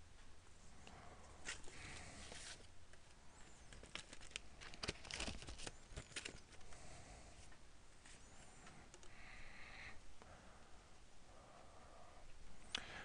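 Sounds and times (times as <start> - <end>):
crackling rustles: 1.4 - 9.1.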